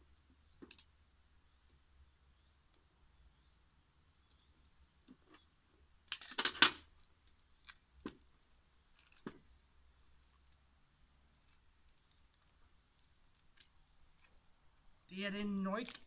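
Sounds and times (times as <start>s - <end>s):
faint clicks: 4.2s - 5.5s.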